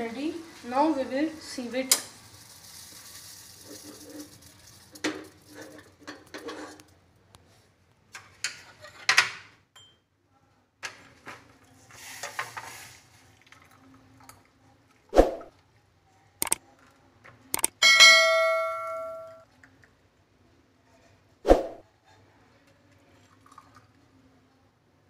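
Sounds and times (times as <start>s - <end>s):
metal pan and glass cups clattering: 17.8s - 19.4s.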